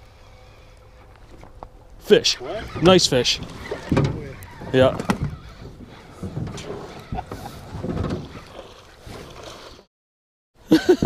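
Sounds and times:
handling noise in a boat: 0.1s - 9.9s
water splashing: 2.1s - 9.9s.

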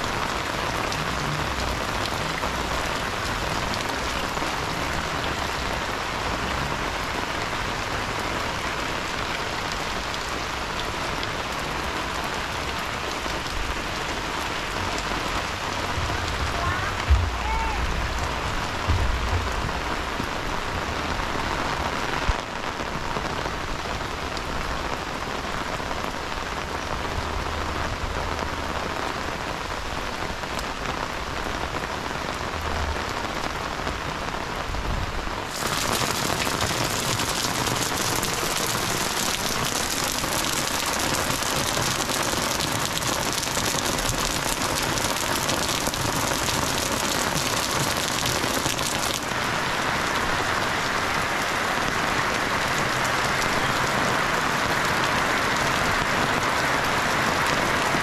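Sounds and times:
heavy rain pouring: 0.0s - 58.0s.

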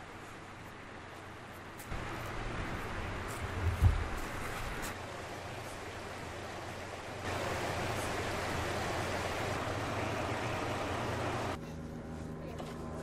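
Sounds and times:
low steady hum: 0.0s - 13.0s
rushing floodwater: 4.1s - 11.6s.

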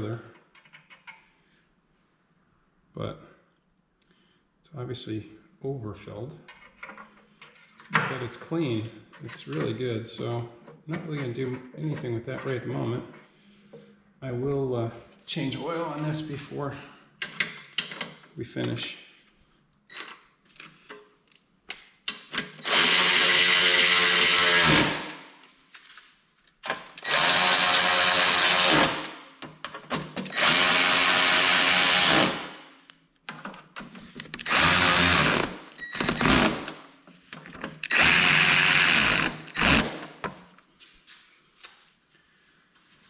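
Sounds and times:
electric starter cranking engine: 22.6s - 25.1s, 27.0s - 29.1s, 30.3s - 32.4s, 34.4s - 36.8s, 37.9s - 40.0s.

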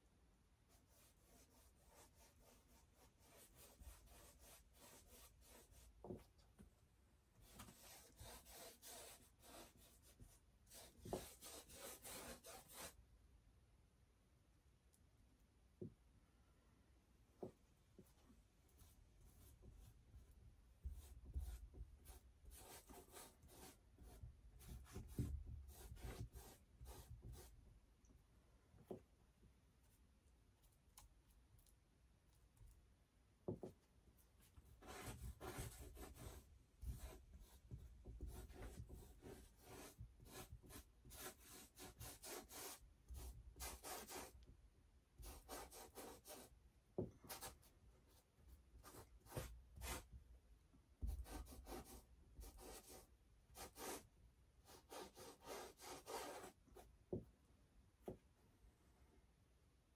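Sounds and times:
paintbrush scrubbing on canvas: 0.7s - 6.1s, 7.4s - 13.0s, 18.8s - 27.6s, 34.2s - 44.4s, 54.7s - 56.8s.

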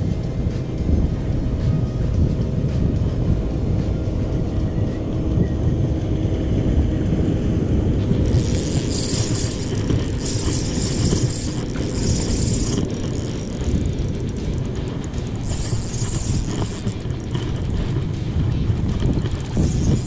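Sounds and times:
wind rumble on microphone: 0.0s - 20.0s
fishing reel whirring: 8.2s - 20.0s.

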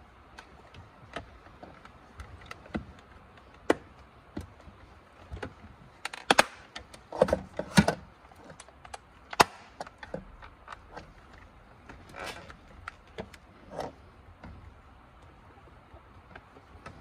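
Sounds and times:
plastic scraping and rubbing: 0.4s - 14.9s
plastic clicks and snaps: 5.3s - 7.1s, 7.7s - 13.5s.

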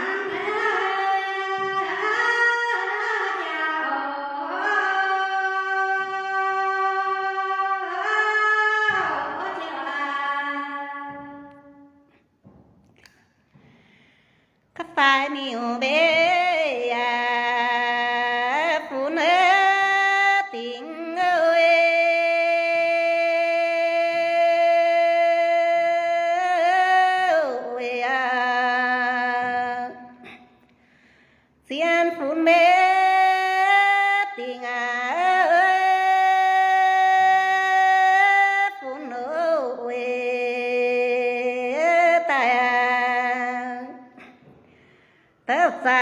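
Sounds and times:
woman singing unaccompanied: 0.0s - 12.0s, 14.8s - 30.4s, 31.6s - 44.4s, 45.5s - 46.0s.

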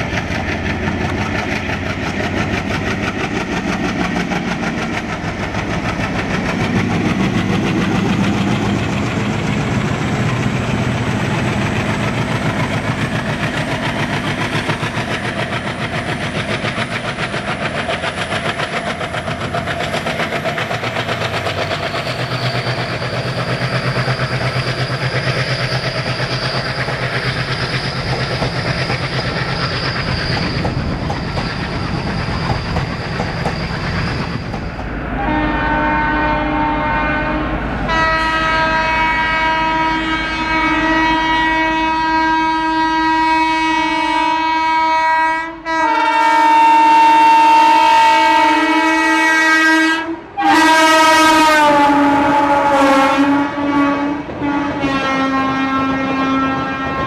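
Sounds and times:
train wheels clattering over rails: 0.0s - 35.0s
diesel locomotives working hard: 0.0s - 57.0s.

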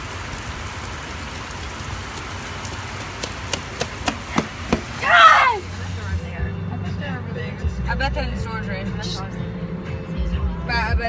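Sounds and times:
running footsteps on wet pavement: 0.0s - 6.2s
heavy rain on pavement: 0.0s - 6.3s.

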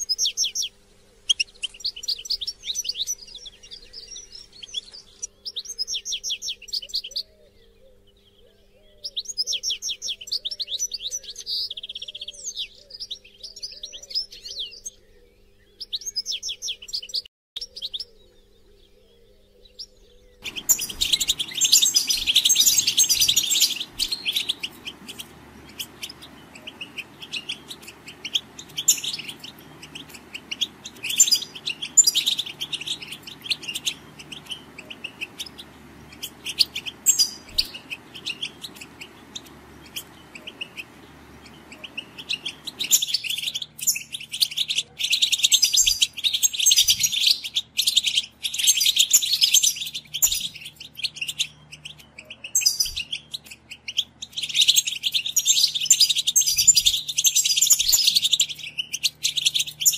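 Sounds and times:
goldfinches twittering: 18.8s - 50.5s.

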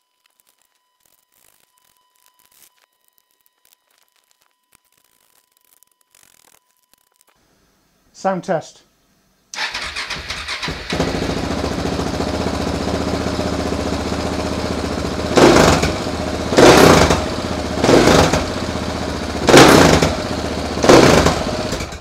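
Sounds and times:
motorcycle engine idling and revving: 9.6s - 22.0s.

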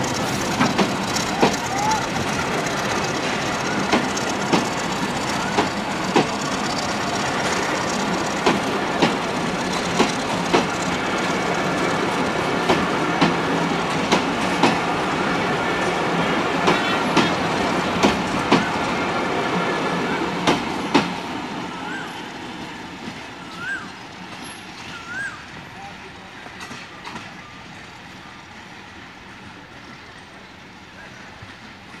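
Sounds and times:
wheels clacking over rail joints: 0.0s - 15.1s, 16.5s - 19.1s
train wheels rumbling on rail: 0.0s - 32.0s.

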